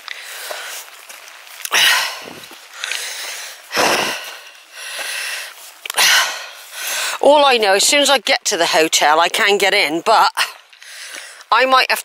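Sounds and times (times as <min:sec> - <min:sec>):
person breathing hard: 0:00.0 - 0:00.9, 0:01.7 - 0:07.2, 0:10.8 - 0:11.5
rain on an umbrella: 0:00.0 - 0:08.0, 0:09.4 - 0:12.0.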